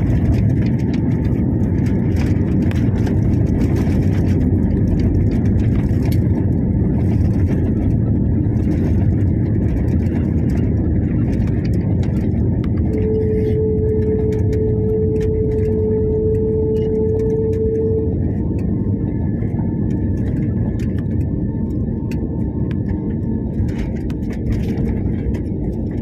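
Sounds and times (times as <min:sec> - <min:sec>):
jet engines and wheels rumbling: 0:00.0 - 0:26.0
steady tone: 0:12.4 - 0:19.8.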